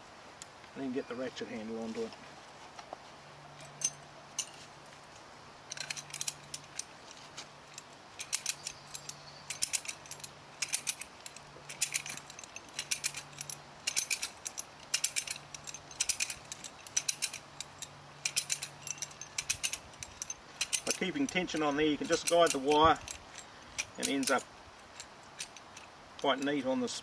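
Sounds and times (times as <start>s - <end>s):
ratchet clicking: 7.8s - 26.6s.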